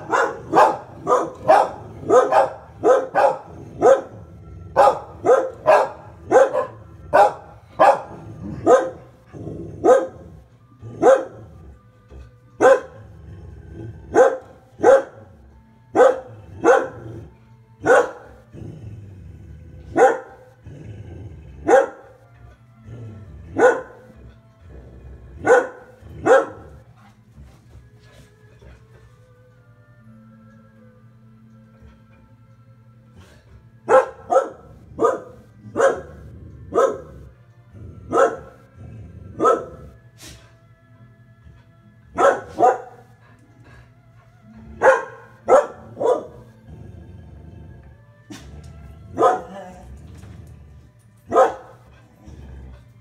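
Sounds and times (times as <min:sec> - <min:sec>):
dog barking: 0:00.0 - 0:04.2, 0:04.8 - 0:09.1, 0:09.8 - 0:10.3, 0:11.0 - 0:11.5, 0:12.6 - 0:13.0, 0:14.1 - 0:15.3, 0:16.0 - 0:17.1, 0:17.8 - 0:18.4, 0:20.0 - 0:20.5, 0:21.6 - 0:22.2, 0:23.6 - 0:24.2, 0:25.4 - 0:26.8, 0:33.9 - 0:37.2, 0:38.1 - 0:38.6, 0:39.4 - 0:39.9, 0:42.1 - 0:43.0, 0:44.8 - 0:46.5, 0:49.2 - 0:49.6, 0:51.3 - 0:51.8.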